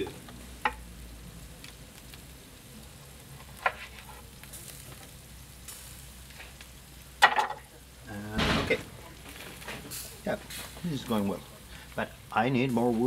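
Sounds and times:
meat sizzling on a grill: 0.0s - 13.0s
wood coals crackling: 0.0s - 13.0s.

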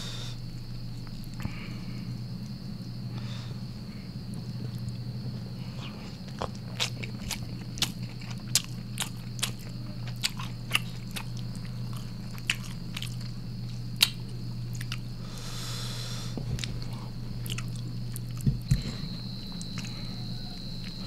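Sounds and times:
steady low hum: 0.0s - 21.0s
wet chewing: 5.6s - 15.1s, 16.6s - 21.0s.

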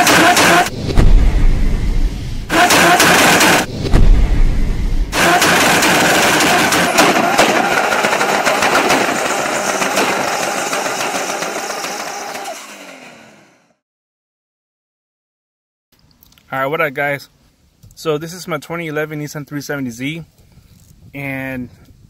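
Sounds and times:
exhaust crackling and popping: 0.0s - 13.0s
car engine blasts: 0.0s - 13.7s.

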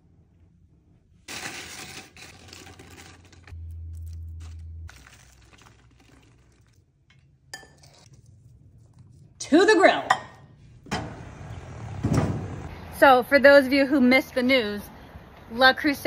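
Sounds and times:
tortilla chips crinkling and clattering: 1.3s - 7.3s
toppings scraping and crackling: 1.3s - 9.5s
low steady hum: 2.2s - 16.0s.

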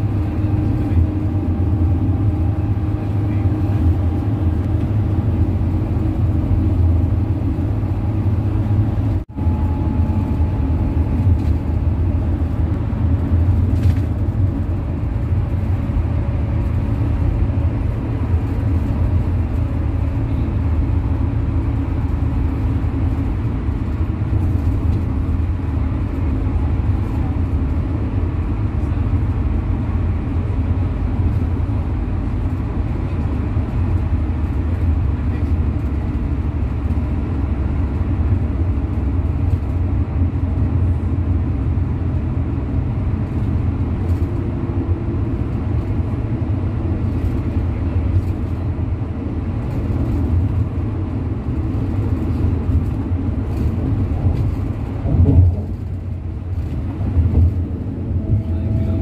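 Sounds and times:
road and engine rumble: 0.0s - 59.0s.

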